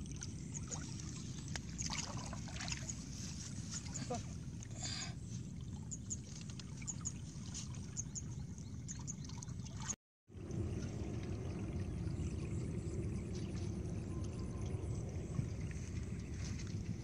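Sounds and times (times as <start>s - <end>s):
water trickling and splashing: 0.0s - 17.0s
low rumble: 10.3s - 17.0s.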